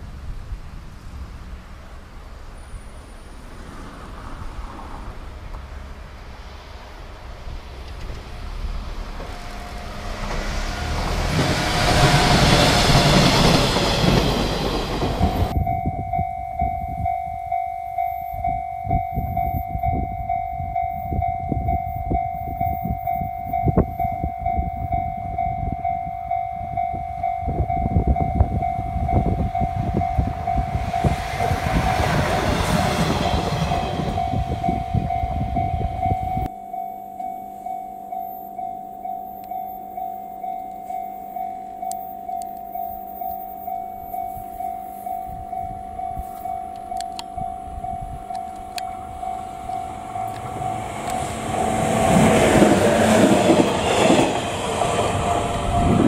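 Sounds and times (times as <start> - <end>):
electric train passing: 0.0 - 56.0
level crossing alarm: 9.3 - 56.0.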